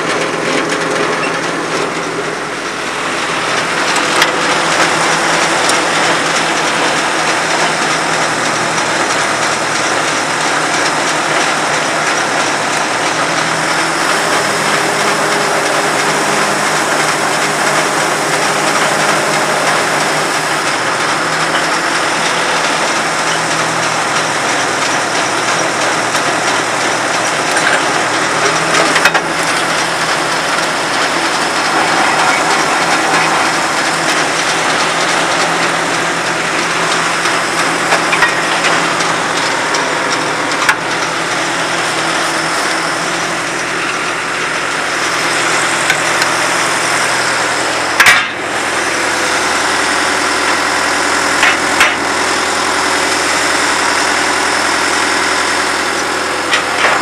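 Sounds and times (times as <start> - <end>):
drill rig engine running: 0.0 - 57.0
machinery clattering: 0.0 - 57.0
sharp metal knocks: 48.0 - 48.4.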